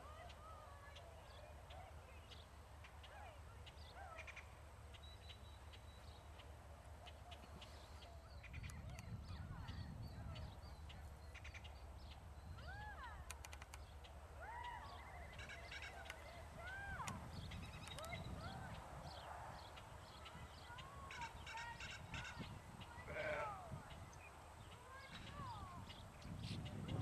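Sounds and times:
farm animals calling: 14.4 - 16.8, 20.2 - 24.0.

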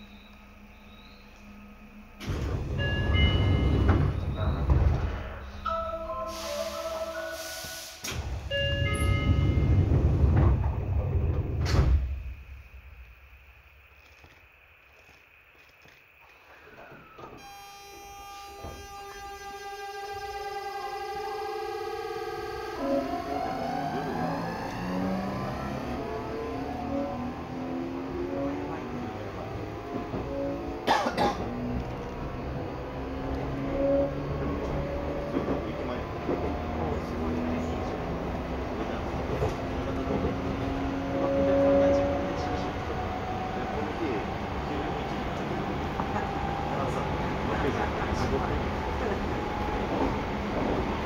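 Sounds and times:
train rumbling: 0.0 - 17.7, 18.3 - 51.0
train doors sliding open: 2.2 - 12.4, 18.4 - 51.0
air hissing: 6.2 - 8.4.

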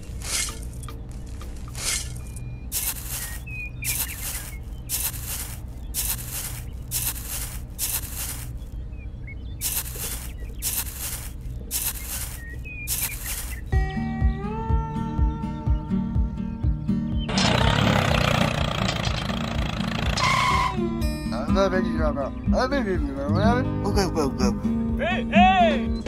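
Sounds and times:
small shovel scraping dry soil: 0.0 - 8.8, 9.6 - 13.7.

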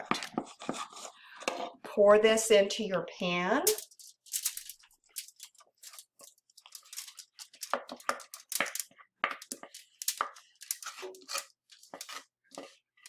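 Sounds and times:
fudge scraped from saucepan: 0.0 - 1.8, 9.6 - 13.0.

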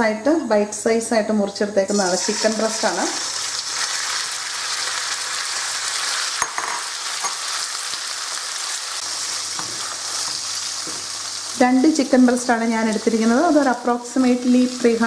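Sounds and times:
chicken sizzling in hot oil: 1.9 - 15.0.

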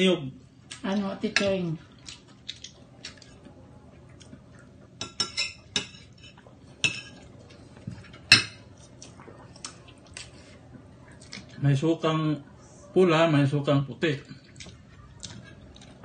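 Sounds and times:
dishes and cutlery clinking: 5.0 - 8.7.

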